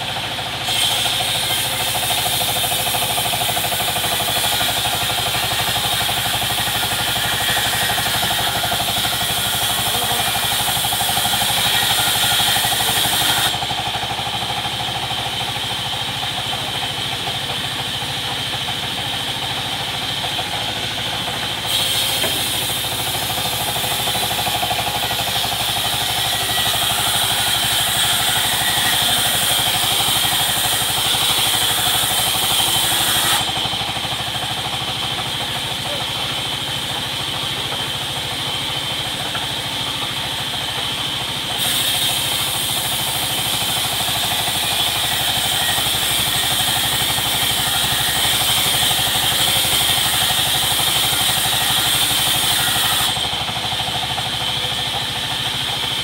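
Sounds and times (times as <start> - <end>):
band sawmill machine hum: 0.0 - 56.0
saw blade hissing in wood: 0.6 - 13.7, 21.6 - 34.3, 41.5 - 53.2.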